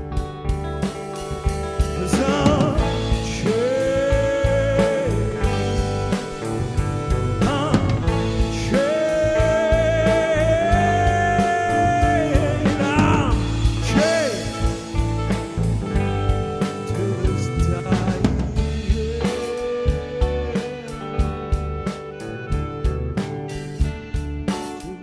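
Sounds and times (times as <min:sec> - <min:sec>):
band playing a song: 0:00.0 - 0:25.0
person singing long notes: 0:02.0 - 0:14.8, 0:16.8 - 0:21.3.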